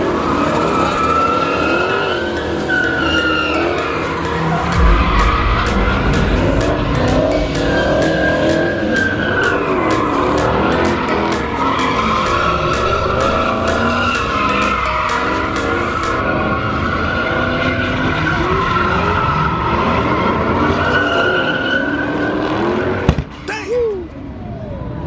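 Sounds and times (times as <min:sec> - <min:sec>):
car engine revving: 0:00.0 - 0:23.1
tyres squealing: 0:00.2 - 0:04.8.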